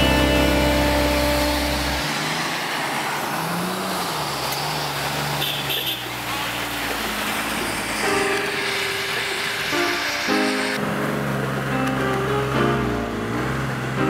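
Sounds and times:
background music: 0.0 - 2.1, 8.1 - 14.0
off-road engine revving: 0.0 - 8.0.

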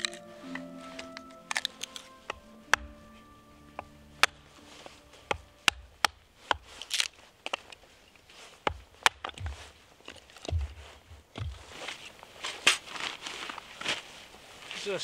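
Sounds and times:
wood splitting: 5.3 - 13.4.

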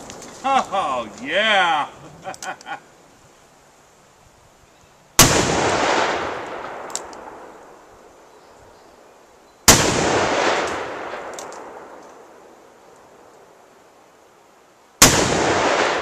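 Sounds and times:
revolver gunshots with echo: 5.2 - 7.6, 9.7 - 12.0, 15.0 - 16.0.

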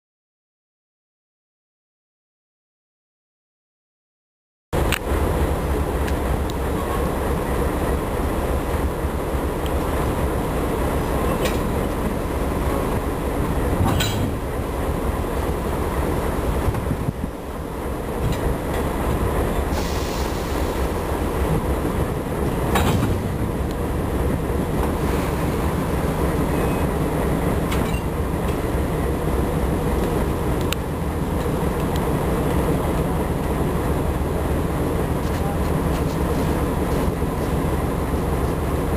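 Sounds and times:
diesel locomotives idling: 4.8 - 38.9.

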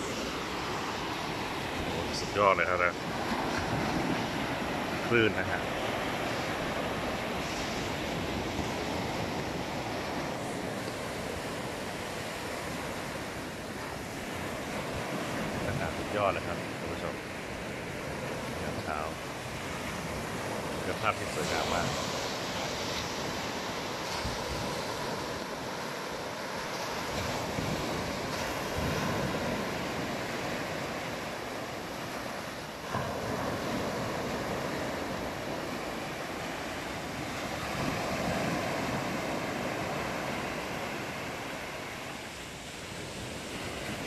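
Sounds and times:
small waves washing up beach: 0.0 - 44.0
wind on microphone: 3.0 - 13.2, 18.2 - 25.8, 26.8 - 30.7.

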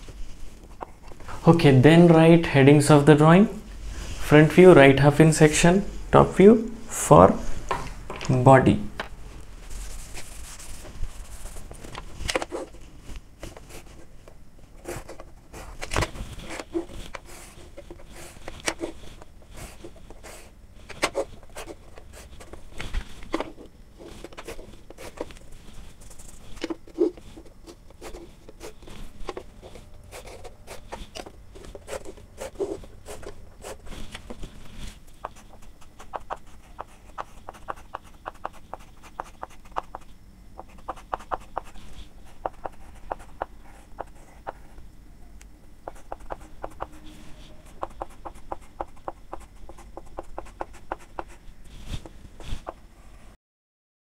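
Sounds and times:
chalk strokes on chalkboard: 9.7 - 11.7, 34.8 - 44.6, 45.9 - 52.8.

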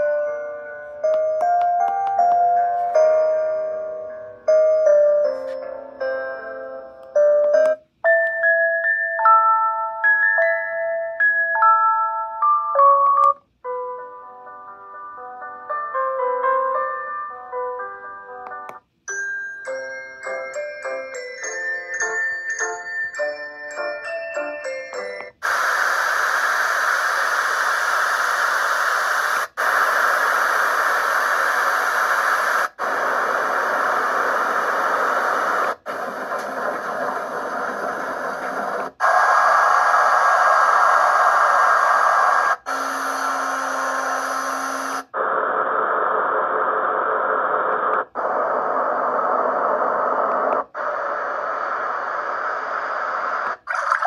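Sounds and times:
white noise hiss: 25.4 - 42.7, 44.9 - 53.8.

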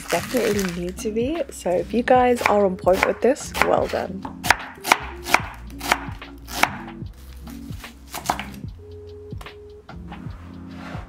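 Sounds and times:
soft background music: 0.0 - 11.0
knife chopping on wooden board: 2.4 - 6.9, 7.5 - 8.6.

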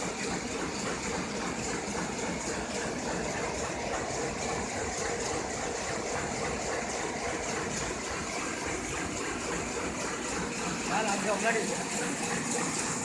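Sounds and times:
printing press running: 0.0 - 13.0.

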